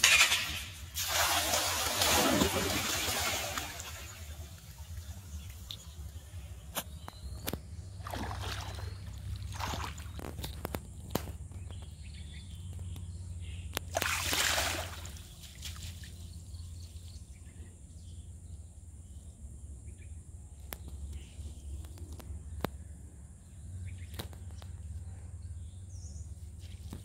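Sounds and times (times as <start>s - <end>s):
water pouring off net: 0.0s - 5.0s, 14.0s - 16.0s
water sloshing and splashing: 0.0s - 5.8s, 7.4s - 11.3s, 13.9s - 16.3s.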